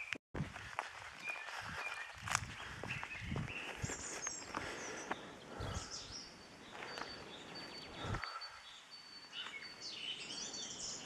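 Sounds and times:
footsteps on dirt track: 0:00.0 - 0:06.0, 0:06.6 - 0:08.4
outdoor noise: 0:00.0 - 0:11.0
small birds chirping: 0:00.0 - 0:11.0.

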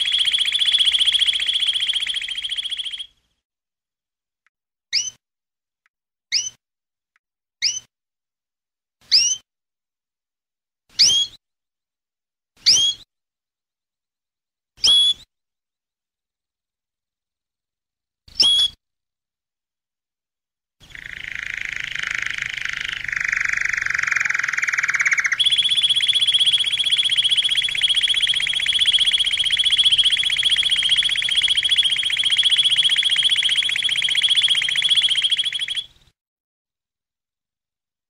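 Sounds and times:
canary singing fast trills: 0:00.0 - 0:03.2, 0:20.8 - 0:36.1.

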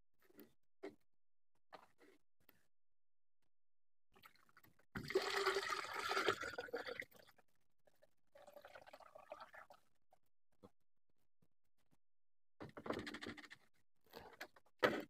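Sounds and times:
liquid pouring through a strainer: 0:04.2 - 0:07.4, 0:08.4 - 0:09.8.

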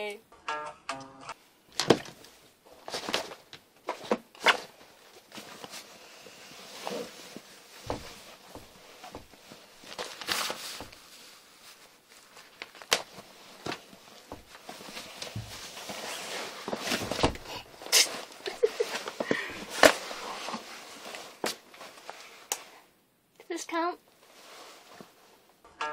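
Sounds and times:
clothing rustling: 0:01.9 - 0:22.9, 0:24.0 - 0:25.6
knocks and bumps: 0:07.8 - 0:09.4.

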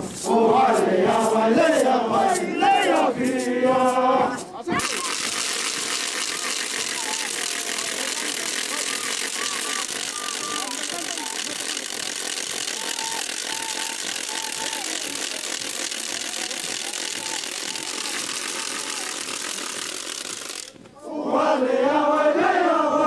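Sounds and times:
group chanted singing in chorus: 0:00.0 - 0:04.4, 0:21.0 - 0:23.0.

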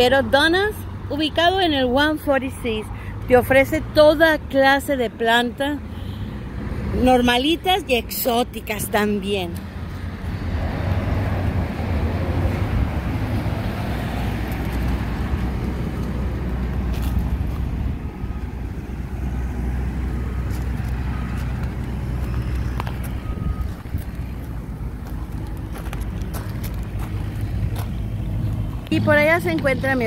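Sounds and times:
low engine rumble: 0:07.0 - 0:30.0.

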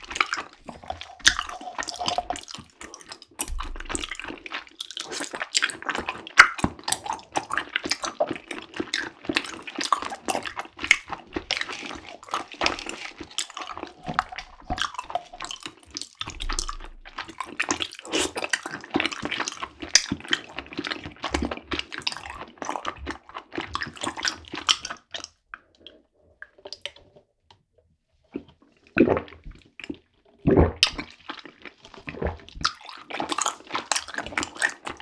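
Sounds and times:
wet chewing mouth sounds: 0:00.0 - 0:27.1, 0:28.3 - 0:35.0
sipping through a straw: 0:00.4 - 0:04.2, 0:12.6 - 0:15.7.

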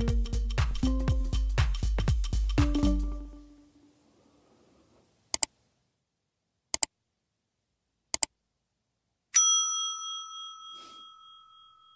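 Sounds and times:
double mouse clicks: 0:05.3 - 0:05.5, 0:06.7 - 0:06.9, 0:08.1 - 0:08.3
bright bell ding: 0:09.4 - 0:11.9.

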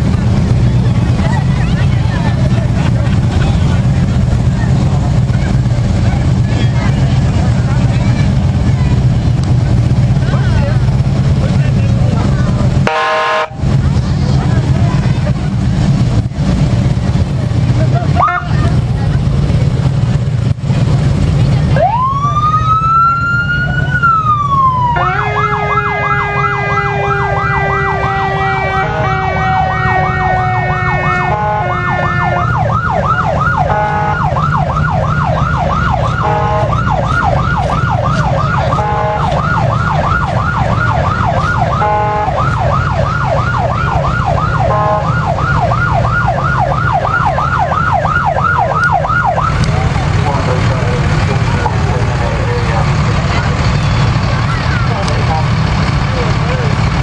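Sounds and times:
low rumble: 0:00.0 - 0:12.9, 0:13.5 - 0:57.0
police siren wail and yelp: 0:21.6 - 0:56.1.

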